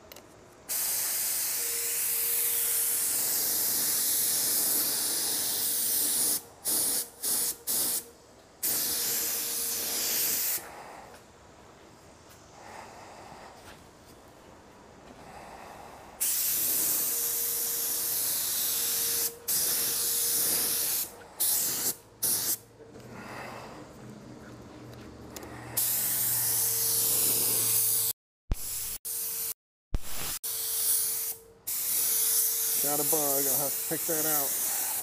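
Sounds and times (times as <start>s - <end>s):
spray gun hissing: 0.7s - 10.9s, 16.2s - 22.6s, 25.8s - 35.0s
faint steady whistle: 1.2s - 3.7s.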